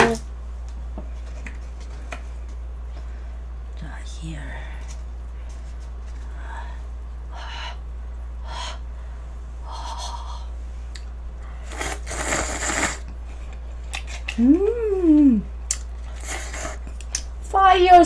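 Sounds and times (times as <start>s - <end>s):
close eating noises: 4.6s - 18.0s
person humming mmm: 14.4s - 15.5s.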